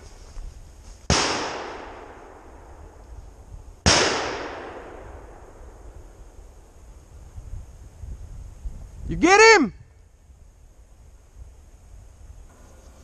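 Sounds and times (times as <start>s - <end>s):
shotgun shots with echo: 1.1s - 2.6s, 3.8s - 5.5s.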